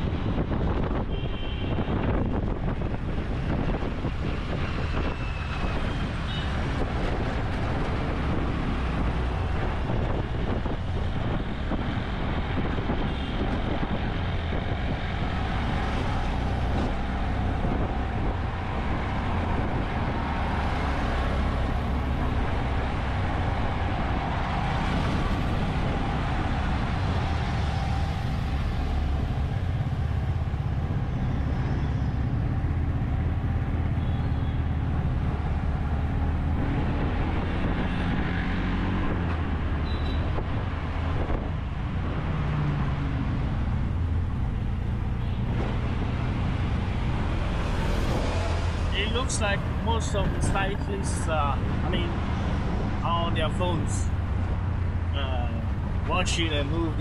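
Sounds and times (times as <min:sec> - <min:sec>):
road traffic noise: 0:00.0 - 0:57.0.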